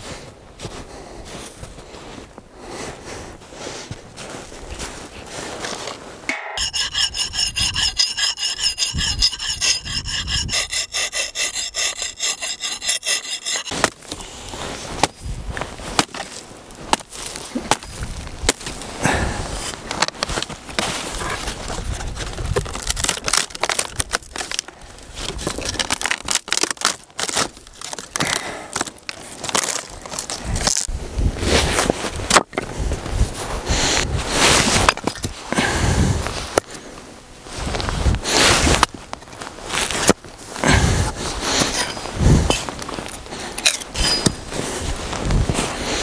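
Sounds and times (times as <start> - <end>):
wooden slats cracking and snapping: 22.6 - 30.9.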